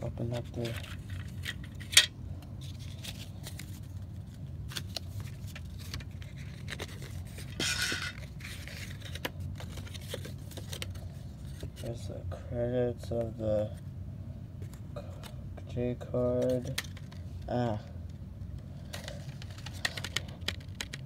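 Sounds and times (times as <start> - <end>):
paper rustling: 2.6 - 11.9.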